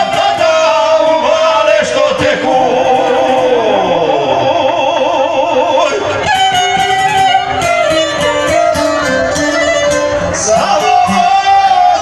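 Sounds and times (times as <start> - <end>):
long-necked lute picked quickly: 2.3 - 12.0
violin: 5.8 - 12.0.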